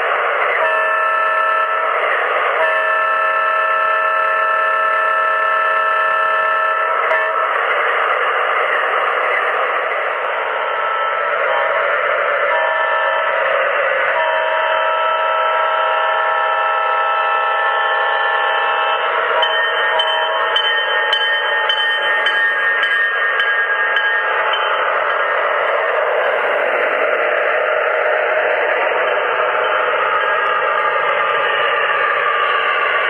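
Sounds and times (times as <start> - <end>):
locomotive bell ringing: 2.6 - 7.6, 12.4 - 13.4, 14.1 - 33.0.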